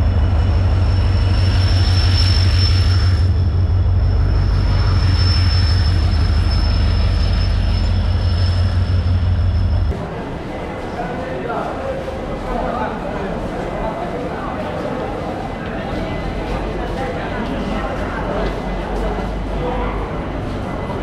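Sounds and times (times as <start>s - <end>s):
high-pitched wheel squeal: 0.0s - 9.9s
train rumbling: 0.0s - 21.0s.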